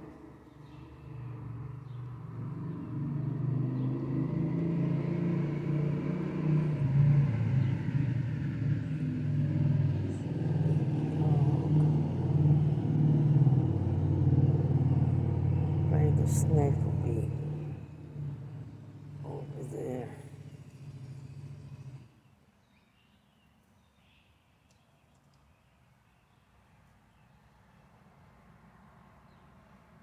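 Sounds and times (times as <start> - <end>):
motorcycle engine running: 6.9 - 22.0.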